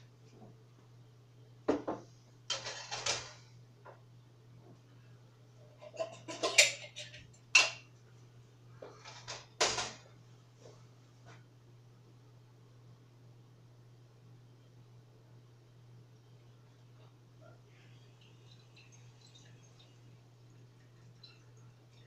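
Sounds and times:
pots and pans clanking: 0:02.5 - 0:03.4, 0:05.8 - 0:07.8.

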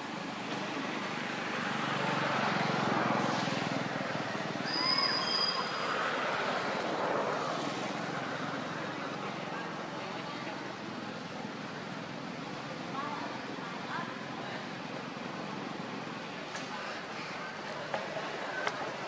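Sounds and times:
short high whistles: 0:04.6 - 0:05.9.

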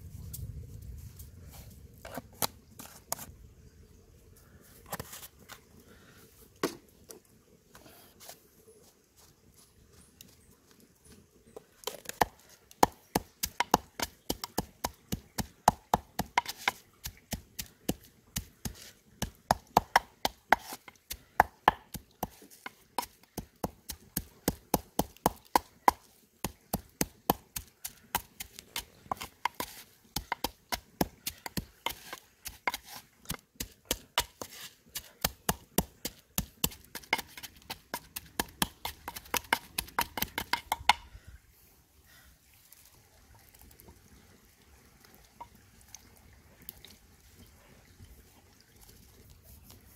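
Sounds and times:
pestle pounding in mortar: 0:12.8 - 0:17.7, 0:19.2 - 0:22.4, 0:23.0 - 0:33.0, 0:33.6 - 0:41.0.

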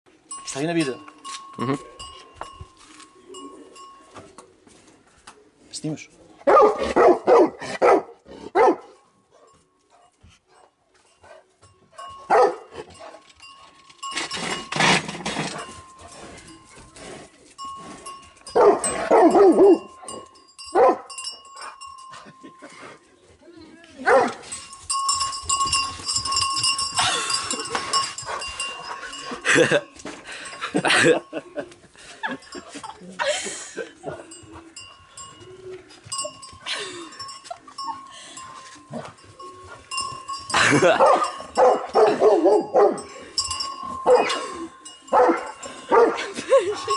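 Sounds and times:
cow bells ringing: 0:00.1 - 0:04.6, 0:11.0 - 0:46.9
dog barking: 0:06.5 - 0:09.5, 0:12.3 - 0:12.7, 0:18.6 - 0:19.9, 0:20.8 - 0:21.1, 0:24.1 - 0:24.4, 0:41.0 - 0:43.0, 0:44.1 - 0:44.4, 0:45.2 - 0:46.2.

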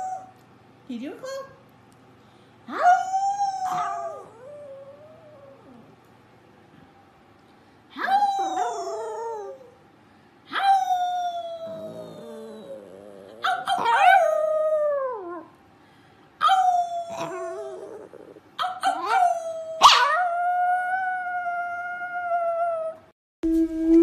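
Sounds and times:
small dog howling: 0:00.0 - 0:00.4, 0:02.7 - 0:05.9, 0:08.0 - 0:09.8, 0:10.5 - 0:15.5, 0:16.4 - 0:23.1.

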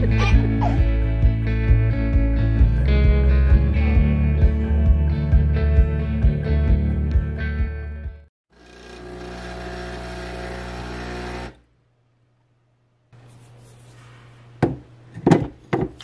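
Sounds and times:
machine hum: 0:08.6 - 0:11.7.

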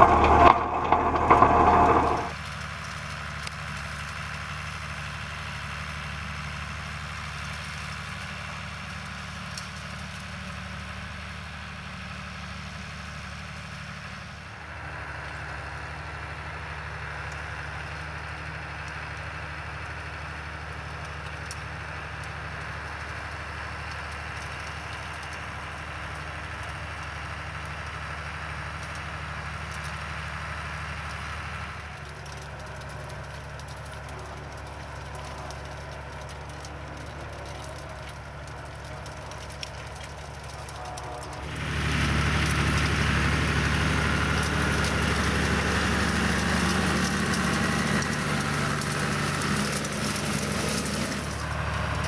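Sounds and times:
faint steady whine: 0:00.0 - 0:02.3
loud burst of noise: 0:00.0 - 0:02.4
tractor diesel engine running: 0:00.0 - 0:52.0.

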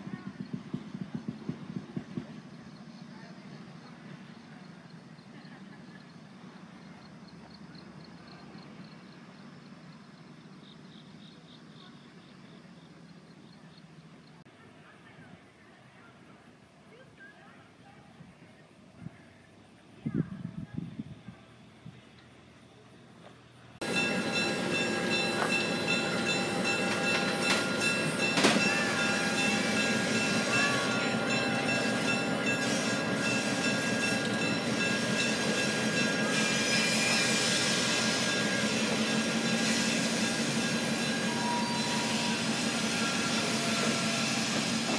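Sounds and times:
rail vehicle running on track: 0:00.0 - 0:44.9
high wheel squeal: 0:23.9 - 0:44.9.

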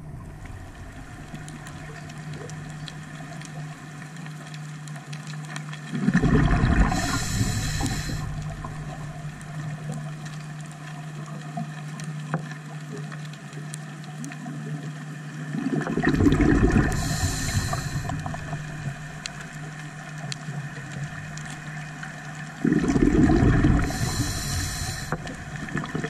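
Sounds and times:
bubbles gurgling underwater: 0:00.0 - 0:04.5, 0:05.2 - 0:13.2, 0:14.1 - 0:26.0
steady low hum: 0:06.7 - 0:10.1, 0:16.5 - 0:20.1, 0:23.5 - 0:26.0
brief hiss: 0:07.0 - 0:08.3, 0:16.9 - 0:18.2.

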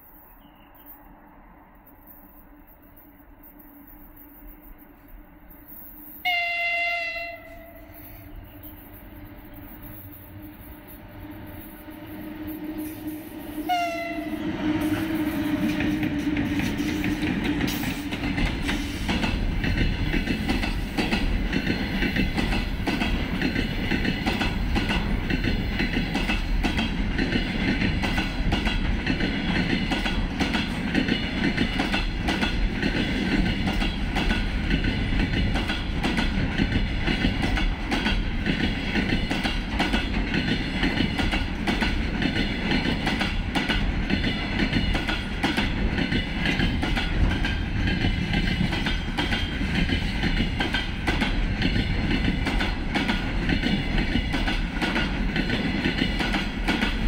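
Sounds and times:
electric locomotive hum: 0:00.0 - 0:57.0
train horn blast: 0:06.2 - 0:08.8, 0:10.5 - 0:16.9
wheels clacking over rail joints: 0:15.0 - 0:57.0.

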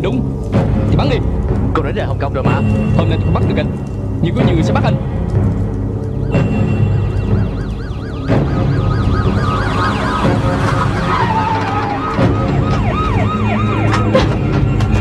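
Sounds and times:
police sirens yelping: 0:06.1 - 0:15.0.

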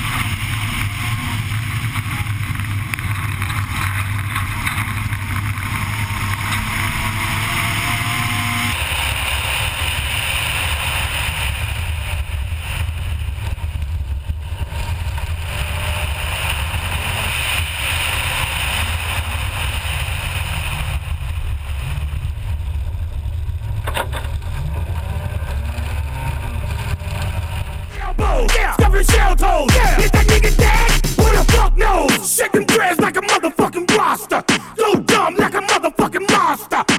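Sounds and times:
wind: 0:00.0 - 0:28.0
rally car engine running hard: 0:00.0 - 0:32.1.

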